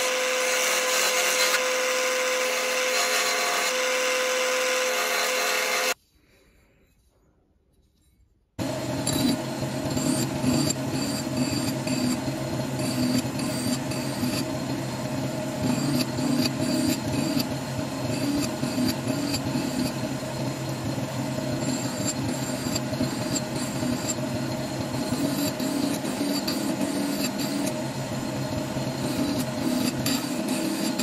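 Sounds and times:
lathe motor running: 8.6 - 31.0
metal rasping on sanding drum: 21.5 - 27.8.

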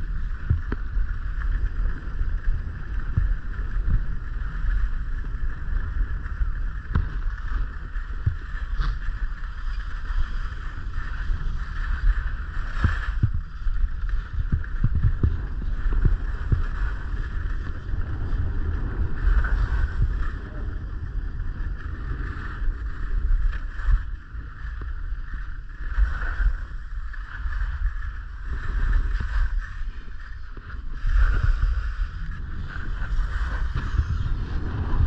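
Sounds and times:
wind buffeting microphone: 0.0 - 35.0
skis hissing on snow: 19.0 - 20.4, 28.4 - 34.9.

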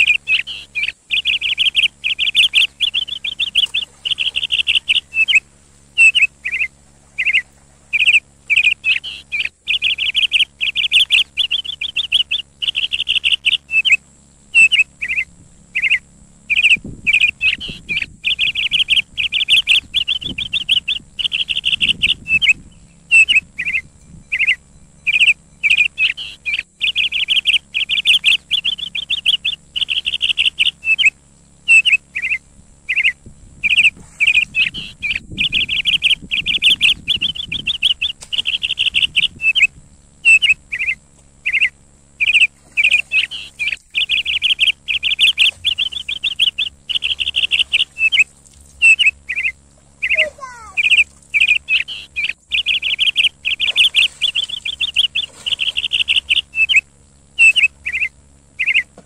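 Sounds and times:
falling bird call: 0.0 - 14.0, 40.3 - 56.8, 57.4 - 58.9
birds chirping: 0.0 - 59.0.

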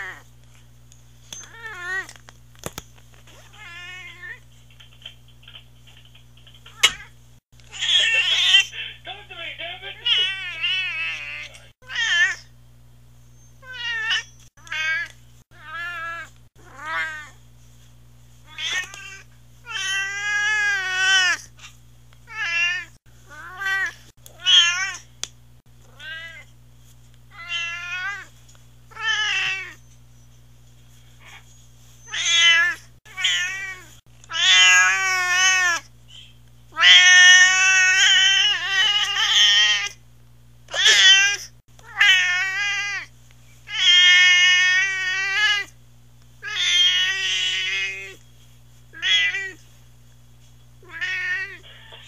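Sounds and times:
low electrical hum: 0.0 - 52.0
cat meowing: 22.3 - 25.0, 32.0 - 35.8, 36.8 - 40.0, 40.7 - 43.1, 43.7 - 45.7, 46.4 - 48.2, 49.0 - 49.6, 50.8 - 51.6.

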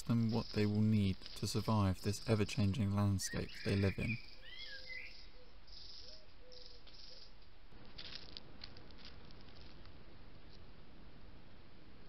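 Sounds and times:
fox cubs chirping: 0.0 - 7.4
rustling in dry leaves: 6.8 - 10.9.

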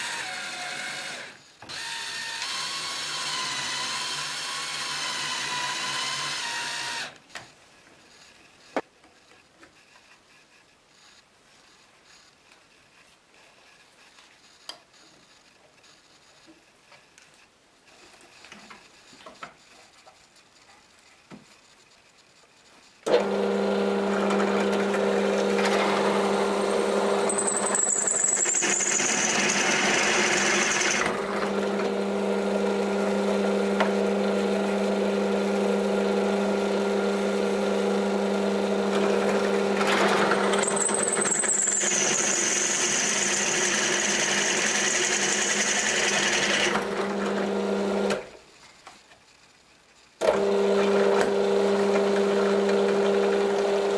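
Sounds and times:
drill press motor humming: 23.1 - 48.2, 50.2 - 53.9
drill bit cutting metal whine: 25.4 - 31.1, 40.2 - 46.7.

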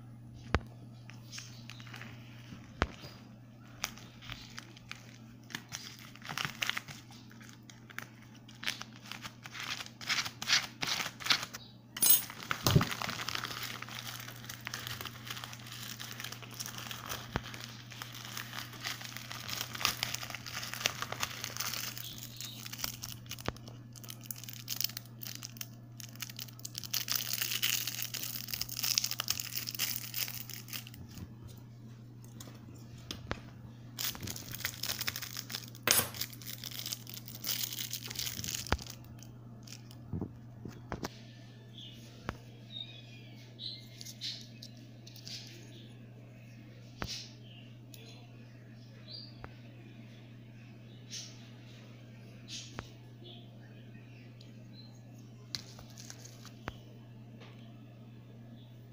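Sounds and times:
plastic packaging crinkling: 1.2 - 31.4, 34.0 - 41.1, 55.5 - 56.7.

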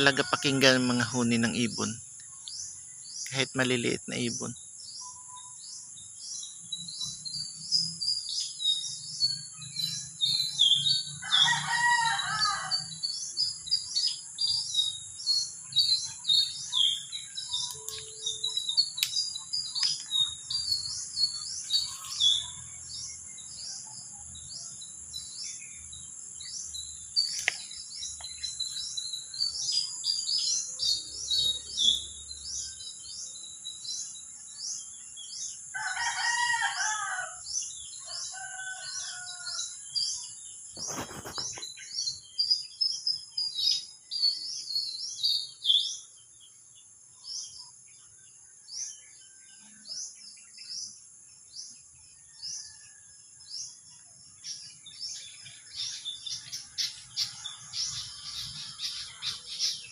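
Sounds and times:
small birds chirping: 0.0 - 59.9
high insect buzz: 5.6 - 23.8
rooster crowing: 10.9 - 13.0, 35.7 - 39.8.

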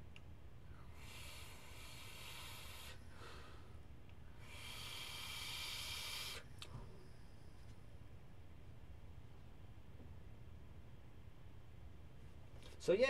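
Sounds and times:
vape atomizer hissing: 0.8 - 3.1, 4.4 - 6.6.

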